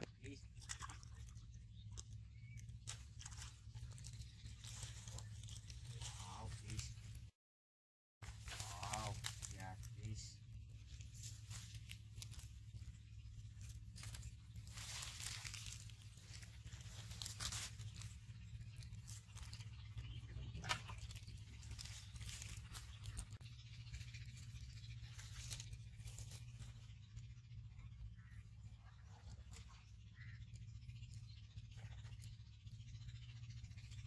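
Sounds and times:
low steady hum: 0.0 - 7.3, 8.2 - 34.0
dry plant stalks rustling: 0.9 - 7.3, 8.2 - 27.1.

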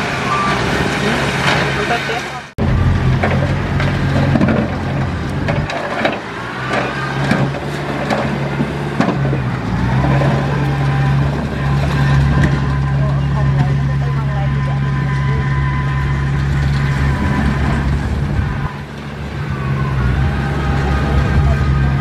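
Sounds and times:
heavy diesel machine running: 0.0 - 22.0.

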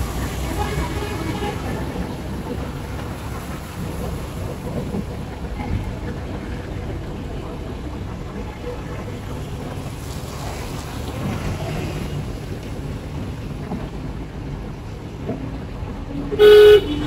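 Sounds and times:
vehicle rumble: 0.0 - 17.0.

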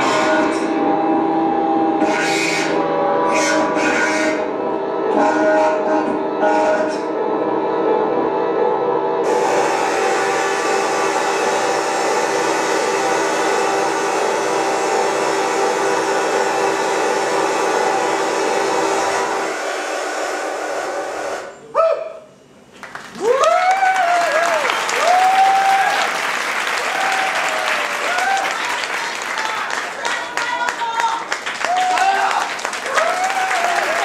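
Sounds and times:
droning live music: 0.0 - 21.7
audience applause and cheering: 9.2 - 20.4, 22.8 - 34.0.

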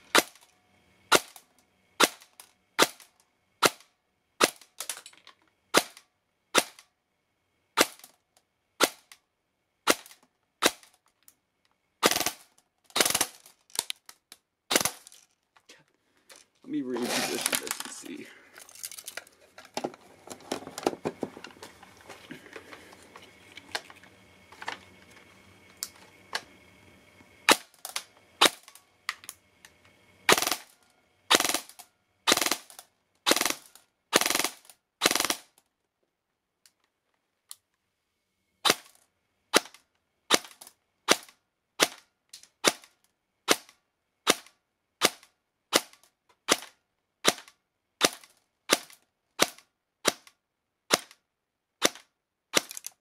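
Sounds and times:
airsoft gun firing single shots: 0.1 - 0.4, 1.1 - 1.4, 2.0 - 5.0, 5.7 - 6.9, 7.8 - 8.1, 8.8 - 9.2, 9.8 - 11.0, 12.0 - 13.9, 14.7 - 15.1, 30.3 - 30.7, 31.3 - 35.5, 38.6 - 42.0, 42.6 - 42.9, 43.5 - 51.2, 51.8 - 52.9
gun handling clicks: 12.9 - 15.3, 51.8 - 53.0.

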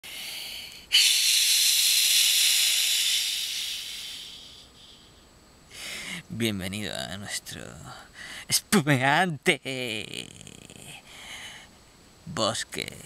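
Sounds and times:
loud hiss: 0.0 - 6.4.

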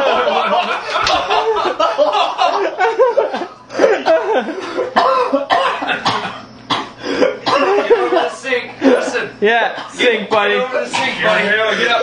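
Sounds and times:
people laughing: 0.0 - 6.1, 7.2 - 9.3
man coughing and choking: 3.2 - 9.1, 9.7 - 11.3
voices: 7.2 - 12.0.

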